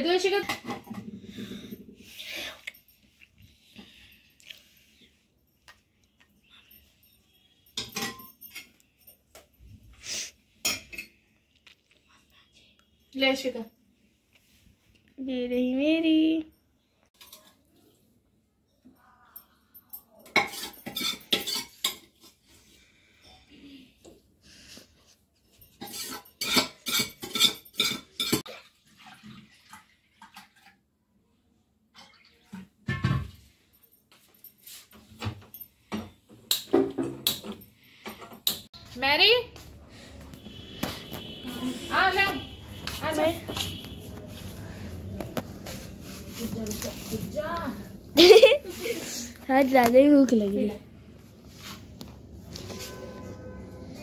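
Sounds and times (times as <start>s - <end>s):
metal spoon scraping and clinking: 20.0s - 22.4s, 25.6s - 28.4s.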